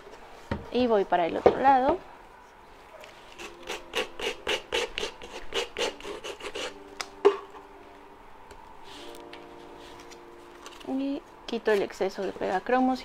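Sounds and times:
sandpaper scraping on wood: 0:03.3 - 0:06.8.

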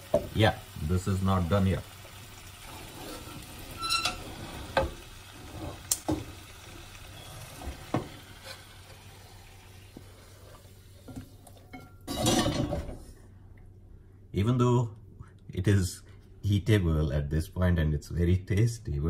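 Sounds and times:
low steady sizzle: 0:00.0 - 0:19.0
wooden spoon scraping wok: 0:02.6 - 0:06.4, 0:07.2 - 0:09.2.

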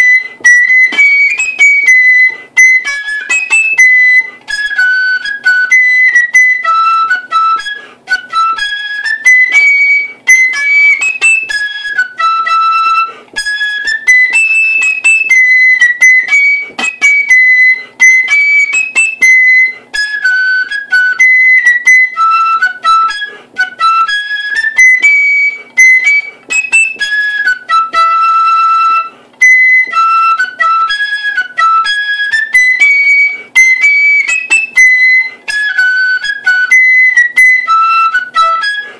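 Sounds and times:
flute playing marching melody: 0:00.0 - 0:38.9.

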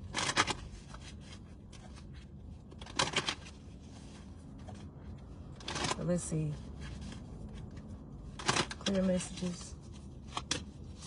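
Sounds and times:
card rustling: 0:06.6 - 0:11.0.

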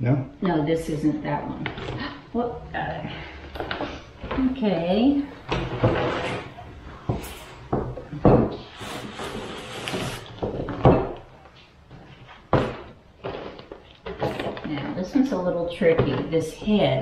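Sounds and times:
rubber mold rubbing and scraping: 0:03.7 - 0:07.2, 0:08.4 - 0:10.8.

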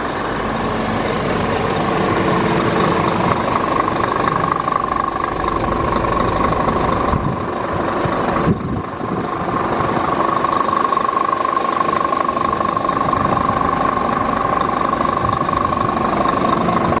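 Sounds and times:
steady high tone: 0:00.0 - 0:08.6, 0:09.2 - 0:17.0
diesel engine idling: 0:00.0 - 0:17.0.

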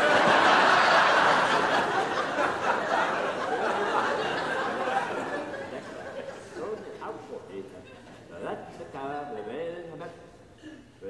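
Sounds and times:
studio audience laughing: 0:00.0 - 0:08.2.

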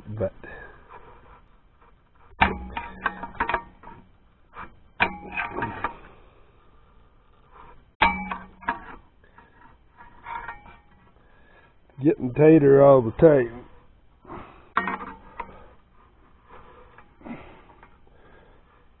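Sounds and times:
hammer tapping a steel bar: 0:08.0 - 0:08.8.

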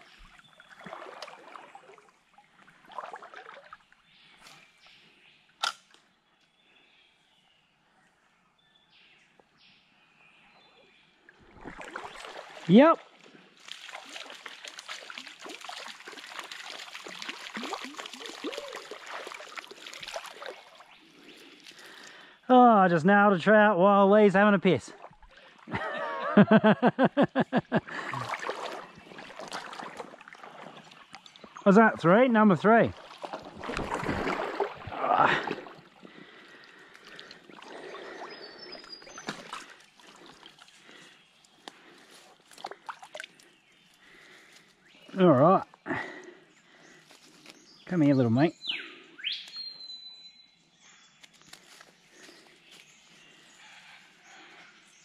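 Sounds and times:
fish splashing in water: 0:11.5 - 0:12.7, 0:13.6 - 0:21.0, 0:28.0 - 0:31.1, 0:33.0 - 0:41.0.

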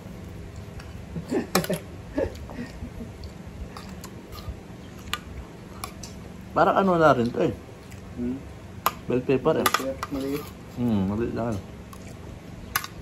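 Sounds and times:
chewing: 0:02.2 - 0:06.2, 0:07.2 - 0:08.2, 0:11.9 - 0:13.0
spoon scraping ceramic plate: 0:09.8 - 0:10.7.

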